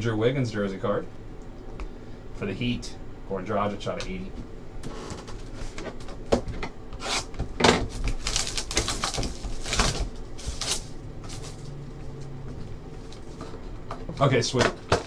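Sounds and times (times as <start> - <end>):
plastic wrap tearing and crinkling: 7.9 - 11.8.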